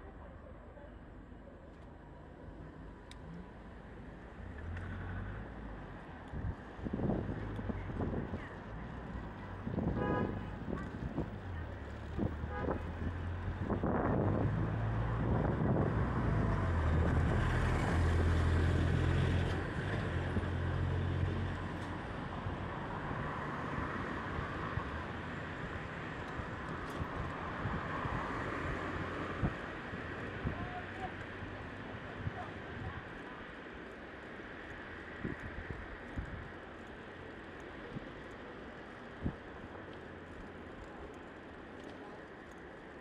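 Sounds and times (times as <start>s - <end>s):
traffic hum: 0.0s - 43.0s.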